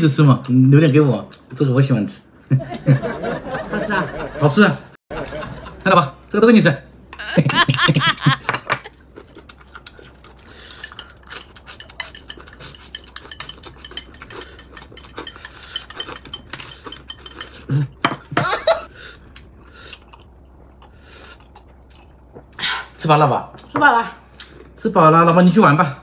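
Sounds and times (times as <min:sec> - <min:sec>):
chopsticks clinking on ceramic bowl: 0:10.3 - 0:18.2.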